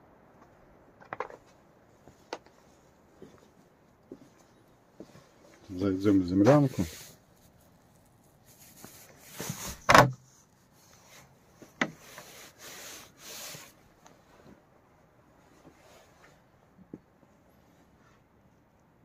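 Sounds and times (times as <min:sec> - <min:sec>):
rustling: 0:00.4 - 0:18.9
rubbing and scraping: 0:06.1 - 0:14.4.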